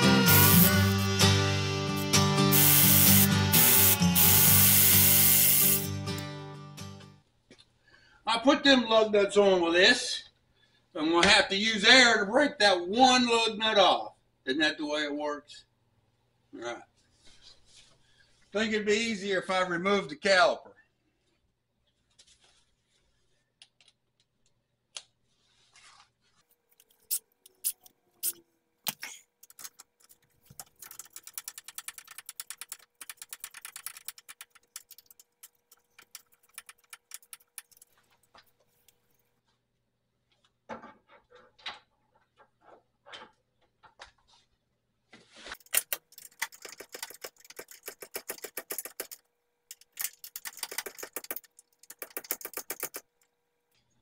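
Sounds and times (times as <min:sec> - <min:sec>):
ratchet wrench clicking: 0:02.5 - 0:05.9, 0:47.2 - 0:53.0.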